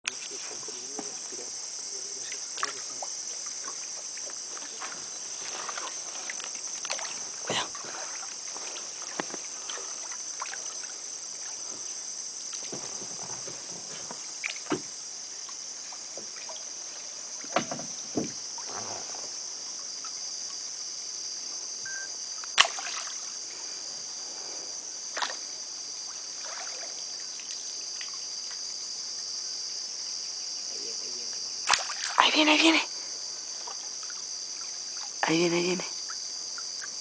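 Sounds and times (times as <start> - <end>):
insect chorus: 0.0 - 37.0
canoe paddle knocks and splashes: 12.5 - 15.0, 17.4 - 19.1, 22.6 - 23.2, 31.7 - 32.2.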